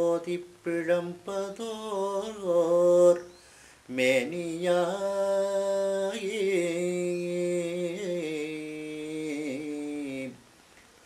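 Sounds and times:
man singing a devotional hymn: 0.0s - 10.4s.

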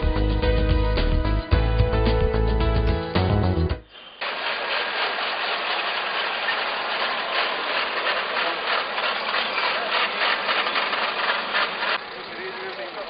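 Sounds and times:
rapid irregular clatter: 4.2s - 13.0s
car engine running: 4.3s - 13.0s.

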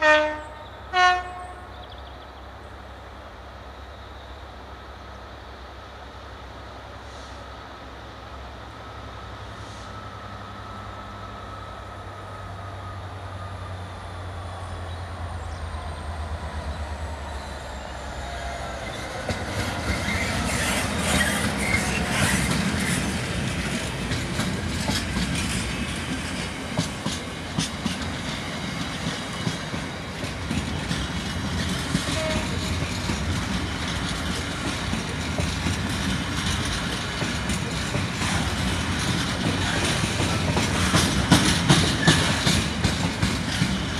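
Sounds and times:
diesel locomotive engine hum: 0.0s - 43.9s
wagons rumbling past: 10.0s - 43.9s
wheels clattering over rail joints: 18.9s - 43.9s.

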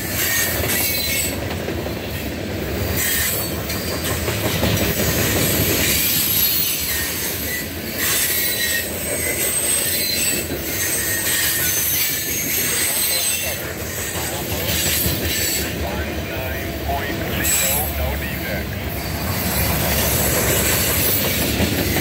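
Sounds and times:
train wheels rumbling on rail: 0.0s - 22.0s
high-pitched wheel squeal: 5.5s - 14.2s.

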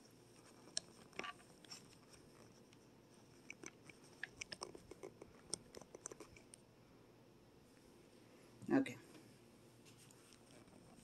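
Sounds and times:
faint small clicks and crackles: 0.3s - 6.6s, 9.9s - 11.0s.

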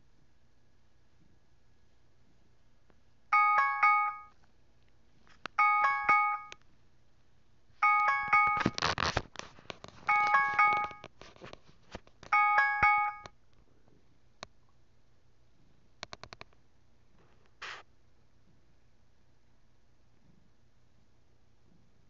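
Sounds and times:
electronic bell chime: 3.4s - 4.3s, 5.6s - 6.6s, 7.8s - 8.8s, 10.1s - 11.0s, 12.4s - 13.3s
rustling with clicks: 7.8s - 13.3s.

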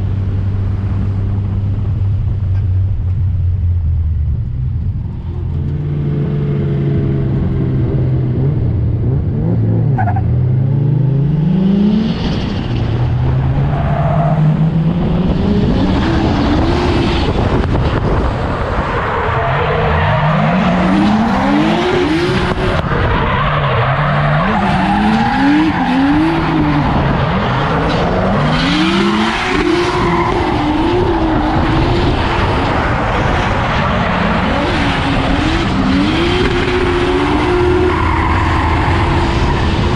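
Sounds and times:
car engine revving: 0.0s - 39.9s
tyres squealing and skidding: 12.2s - 14.8s, 18.6s - 39.9s.

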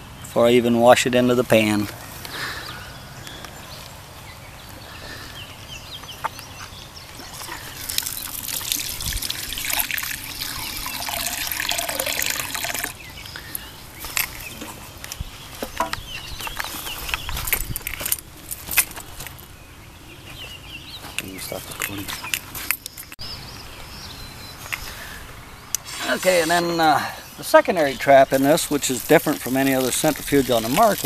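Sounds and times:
water trickling and splashing: 7.2s - 13.1s, 27.4s - 31.0s.

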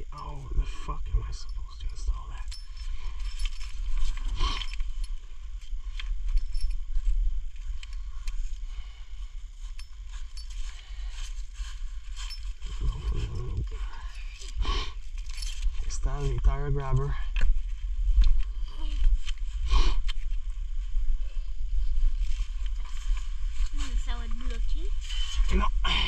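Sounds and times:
low rumble: 0.0s - 26.0s
metal buckle clinking: 1.4s - 7.1s, 9.6s - 11.4s, 12.1s - 16.1s.

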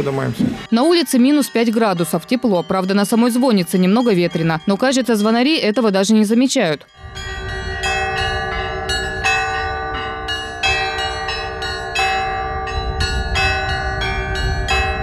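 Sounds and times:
large bells ringing: 0.7s - 15.0s
small bells striking quickly: 0.7s - 15.0s.

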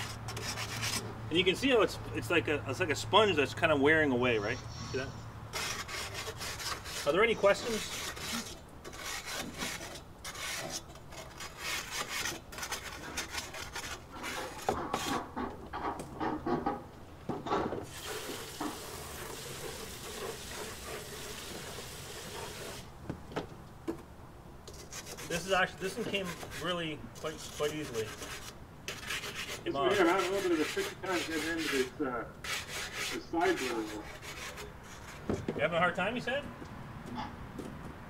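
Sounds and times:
stone scraping grill grates: 0.0s - 1.9s, 4.8s - 15.6s, 17.8s - 22.9s, 24.7s - 35.5s.

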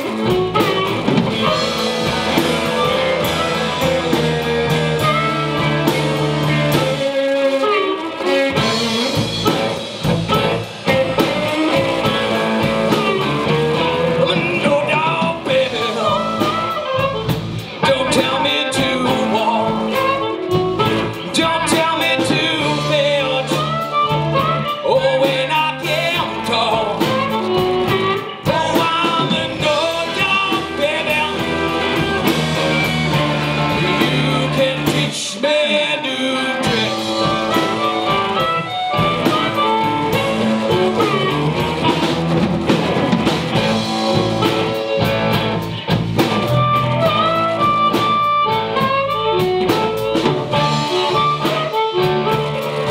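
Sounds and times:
drum kit: 0.0s - 52.9s
electric guitars: 0.0s - 52.9s
man singing: 10.3s - 42.2s, 46.4s - 52.9s.

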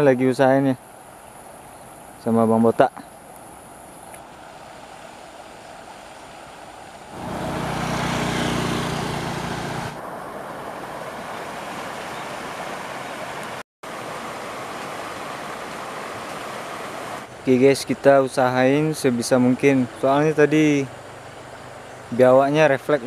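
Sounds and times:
rushing outdoor noise: 0.0s - 23.0s
engine-like hum: 7.1s - 11.8s.

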